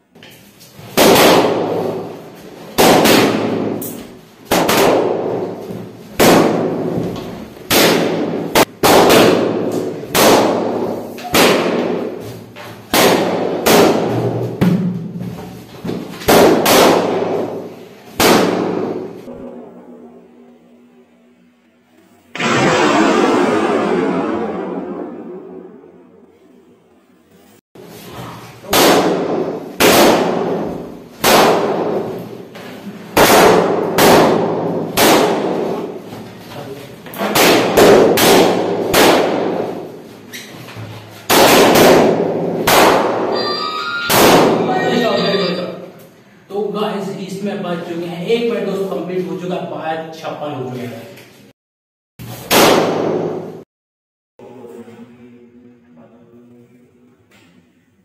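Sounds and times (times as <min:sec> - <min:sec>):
balloons bursting: 0:00.7 - 0:19.7, 0:22.3 - 0:26.2, 0:27.8 - 0:36.4, 0:37.1 - 0:40.4, 0:41.0 - 0:45.6, 0:52.3 - 0:53.6.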